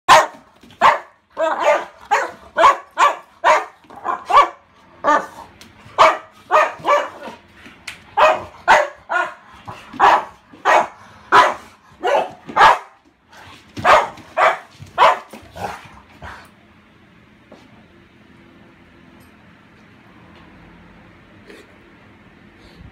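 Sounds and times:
dog barking in short barks: 0.1 - 4.6.

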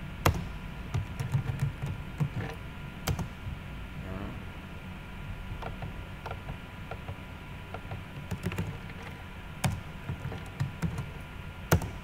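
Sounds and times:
low steady hum: 0.0 - 12.0
keyboard keys clicking: 7.8 - 8.9.

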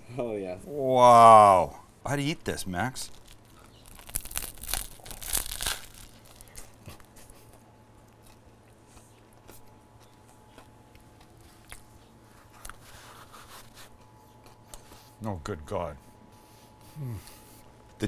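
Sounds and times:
crunchy bite into bread: 3.1 - 7.2
chewing with faint crunching: 3.1 - 15.2.

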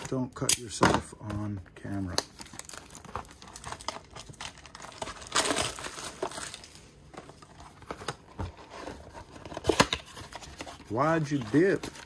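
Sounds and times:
plastic shrink wrap tearing and crackling: 1.9 - 6.9.

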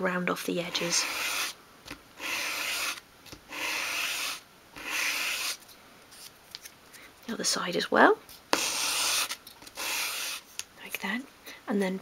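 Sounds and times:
wood sanding strokes on sandpaper: 0.8 - 1.5, 2.2 - 3.0, 8.6 - 10.4.

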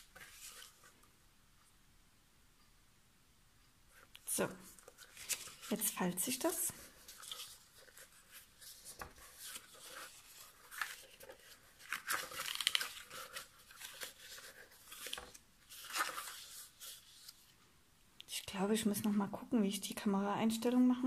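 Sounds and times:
cardstock being folded and rustling: 0.0 - 1.0, 4.4 - 17.6.

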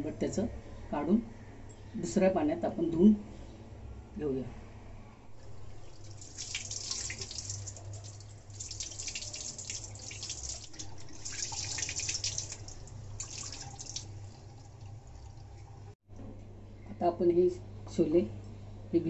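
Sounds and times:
tap water running into bowl: 5.4 - 15.9
fingers splashing water: 5.6 - 15.7.

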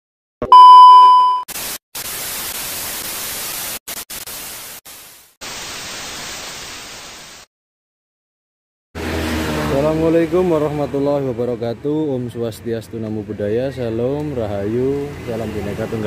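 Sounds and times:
test-pattern beep: 0.4 - 1.4.

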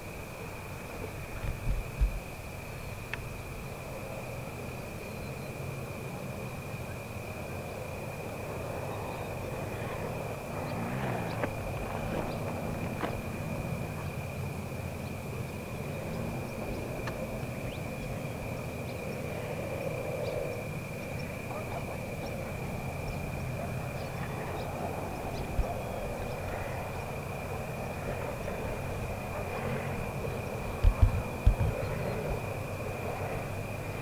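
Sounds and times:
constant low rumble: 0.0 - 34.0
high-pitched insect chorus: 0.0 - 34.0.

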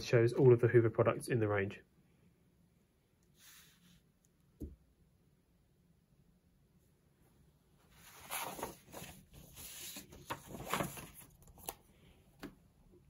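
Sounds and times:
paper brochure rustling: 7.9 - 11.9.

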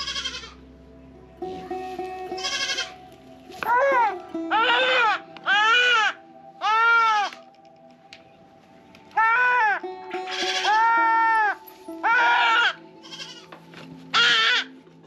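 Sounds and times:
goat kid bleating loudly: 0.0 - 0.6, 2.4 - 2.9, 3.7 - 7.3, 9.2 - 13.5, 14.1 - 14.7.

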